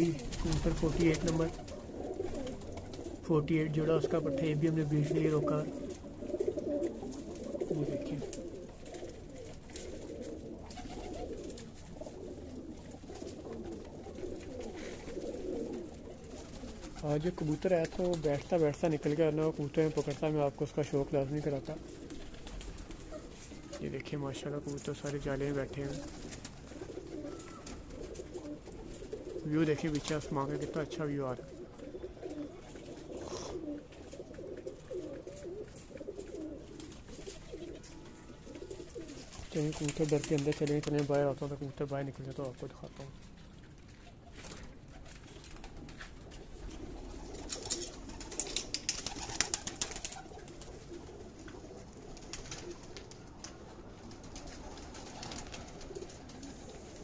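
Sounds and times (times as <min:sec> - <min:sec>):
pigeons cooing: 0:00.0 - 0:57.0.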